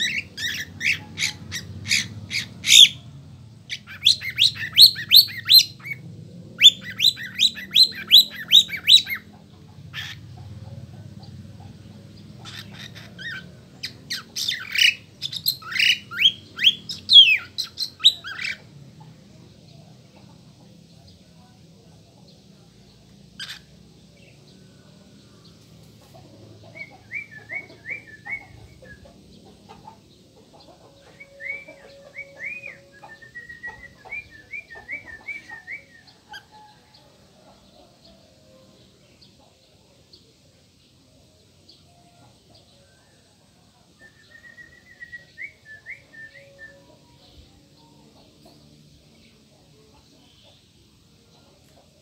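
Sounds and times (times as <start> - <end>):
bird whistling song: 3.7 - 6.0, 6.6 - 9.3, 12.6 - 18.6, 26.7 - 29.1, 31.1 - 36.6, 44.0 - 46.9.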